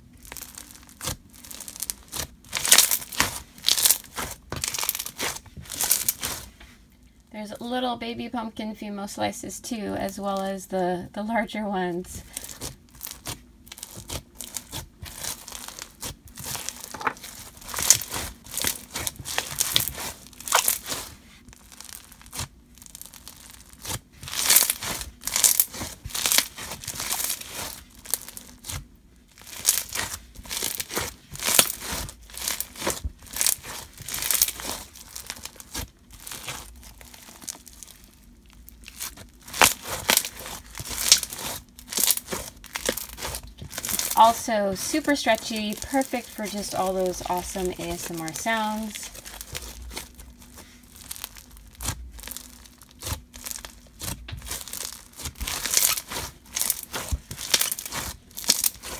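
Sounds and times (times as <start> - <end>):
slime crunching and crackling: 0.0 - 7.3, 12.1 - 58.9.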